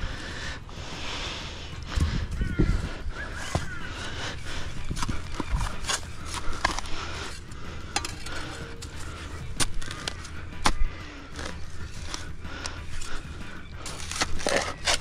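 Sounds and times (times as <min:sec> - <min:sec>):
spade clinking: 0:04.9 - 0:15.0
spade scraping into soil: 0:04.9 - 0:15.0.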